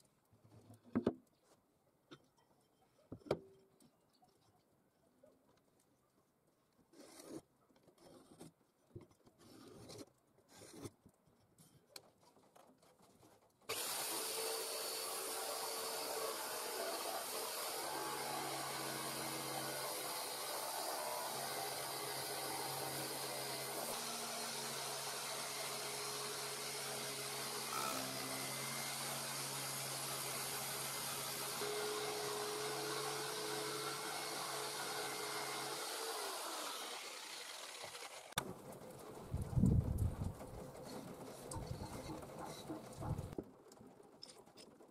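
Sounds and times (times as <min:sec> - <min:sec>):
pencil scratching: 0:07.0 - 0:08.5, 0:41.5 - 0:43.4
electric jigsaw cutting plywood: 0:13.7 - 0:38.4.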